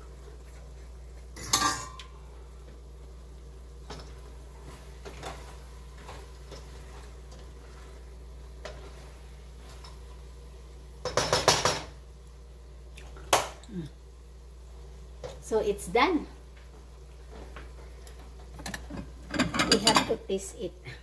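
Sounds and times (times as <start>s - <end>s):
spoon scraping a metal pot: 18.6s - 20.2s.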